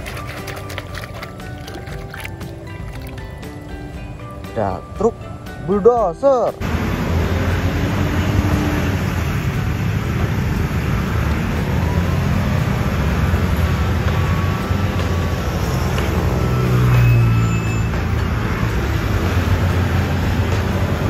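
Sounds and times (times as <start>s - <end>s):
wheel loader diesel engine: 6.6s - 21.0s.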